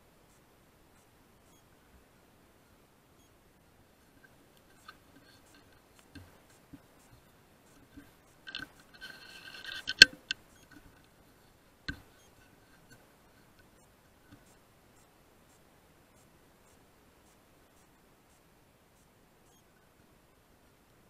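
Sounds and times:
scratchy rustle: 0:04.1 - 0:13.7
faint handling clicks: 0:04.2 - 0:11.2.

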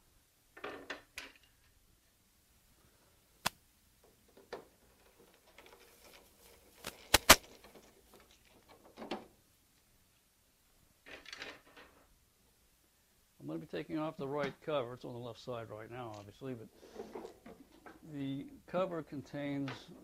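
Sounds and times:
loud sharp clicks: 0:03.4 - 0:03.6, 0:06.8 - 0:07.5.

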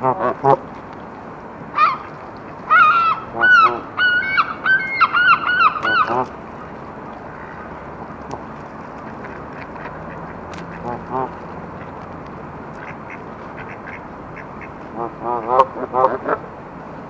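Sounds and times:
low background hiss: 0:00.0 - 0:17.0
geese honking: 0:01.7 - 0:06.3, 0:12.8 - 0:16.4.

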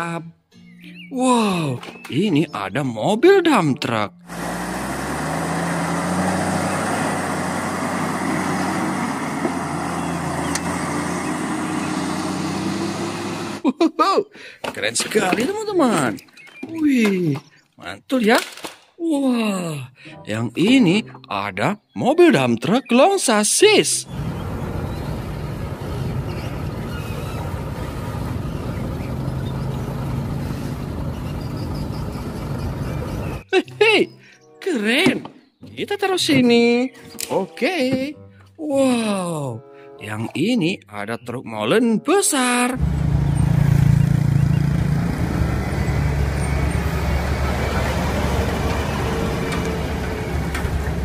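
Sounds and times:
dump truck engine running: 0:04.3 - 0:13.6, 0:24.1 - 0:33.5, 0:42.8 - 0:51.0.

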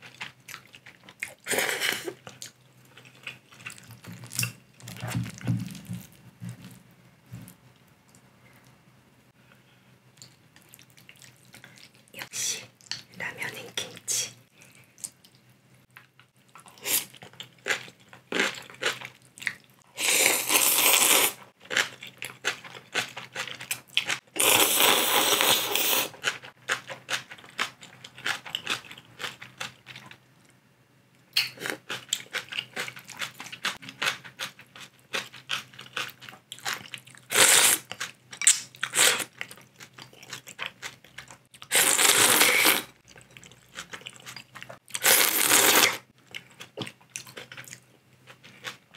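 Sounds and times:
wet chewing and crunching: 0:02.1 - 0:06.8, 0:10.2 - 0:12.1, 0:16.0 - 0:24.6, 0:25.2 - 0:30.2, 0:31.4 - 0:48.9
loud noodle slurps: 0:45.0 - 0:46.0.

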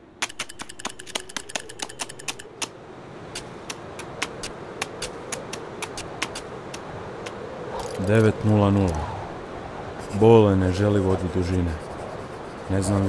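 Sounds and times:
sharp clicks and taps: 0:00.1 - 0:02.7, 0:03.4 - 0:06.8.

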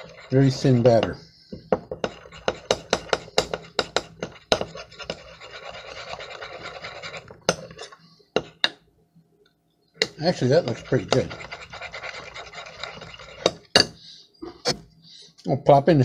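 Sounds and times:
fork whisking batter in a bowl: 0:00.0 - 0:01.2, 0:02.0 - 0:08.6, 0:10.0 - 0:13.9.

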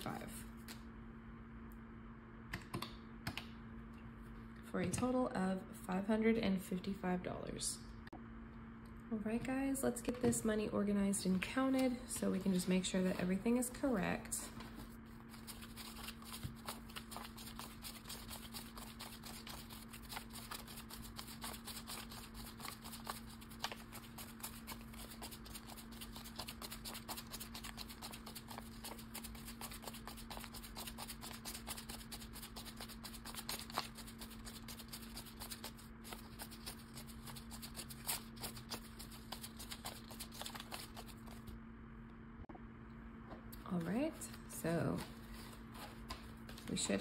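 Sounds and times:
steady low hum: 0:00.0 - 0:47.0
banknotes rustling: 0:14.7 - 0:41.5.

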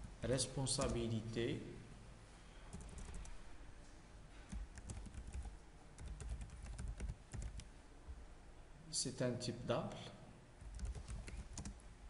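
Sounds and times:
typing on computer keyboard: 0:02.7 - 0:03.4, 0:04.5 - 0:07.7, 0:10.6 - 0:11.8.

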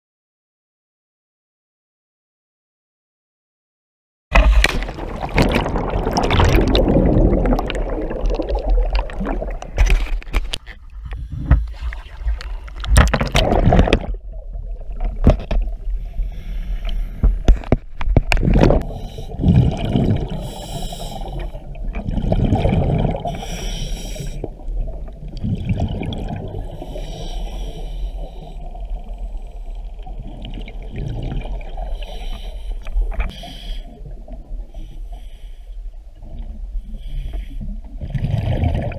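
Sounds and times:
exhaled bubbles burbling: 0:04.4 - 0:16.0, 0:18.2 - 0:23.6, 0:24.4 - 0:27.0, 0:28.6 - 0:32.0, 0:37.7 - 0:38.9
water splash and churning: 0:04.4 - 0:35.3, 0:36.2 - 0:38.9
regulator breathing hiss: 0:20.4 - 0:21.6, 0:23.3 - 0:24.5, 0:26.8 - 0:29.7.

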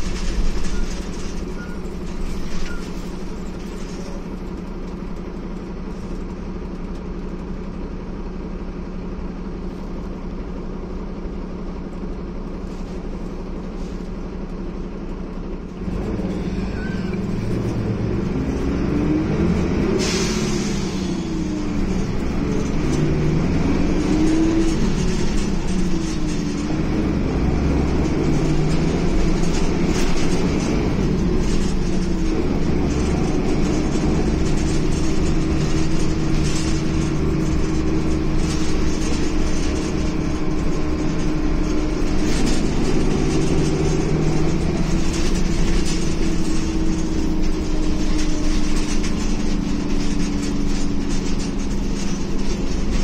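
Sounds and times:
knocks and rattles: 0:00.0 - 0:06.3, 0:20.7 - 0:53.0
bus engine and road rumble: 0:00.0 - 0:53.0.

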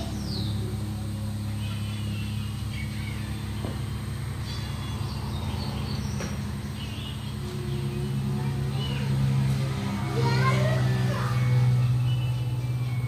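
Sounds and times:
machine humming: 0:00.0 - 0:13.0
faint bird chirps: 0:01.4 - 0:09.1.

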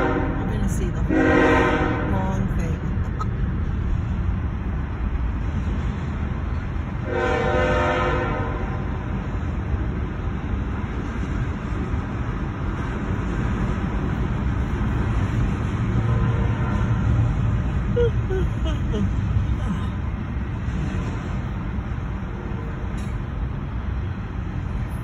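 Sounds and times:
locomotive horn blast: 0:00.0 - 0:02.4, 0:07.0 - 0:08.9, 0:16.0 - 0:17.3
freight train rumble: 0:00.0 - 0:25.0.

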